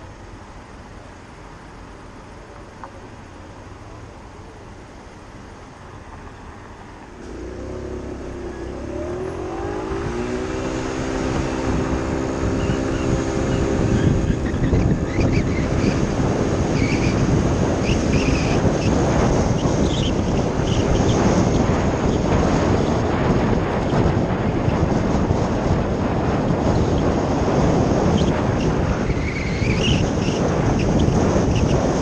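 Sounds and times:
road noise: 0.0 - 32.0
scooter engine: 5.9 - 32.0
wind noise on microphone: 7.1 - 32.0.

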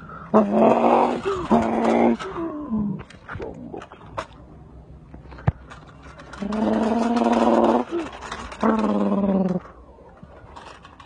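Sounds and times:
person imitating truck engine: 0.3 - 3.9, 6.4 - 9.7.

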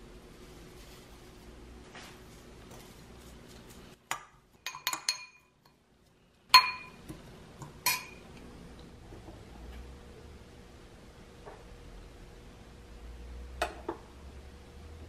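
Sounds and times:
spoon clinking against glass bowl: 4.6 - 5.8, 6.5 - 7.0, 7.8 - 8.2.

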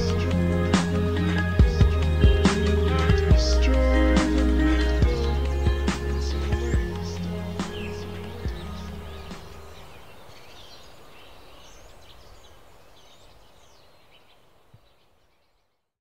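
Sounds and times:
background music: 0.0 - 10.1
birds chirping: 0.0 - 16.0
outdoor ambience: 0.0 - 16.0.

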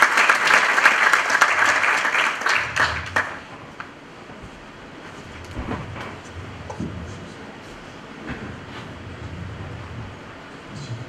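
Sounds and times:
audience applause: 0.0 - 3.9.

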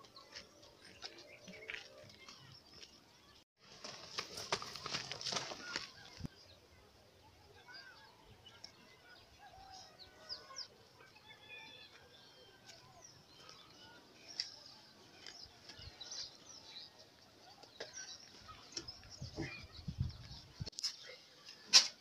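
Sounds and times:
birds chirping: 4.4 - 20.7.

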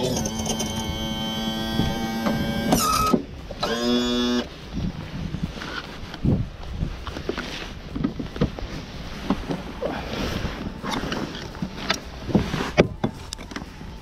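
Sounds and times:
steady low rumble: 4.4 - 14.0.

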